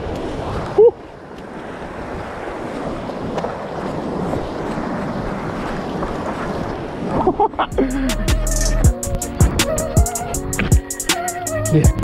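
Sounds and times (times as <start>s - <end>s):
surf washing over rocks: 0.0s - 8.1s
wind rumbling on microphone: 0.0s - 12.0s.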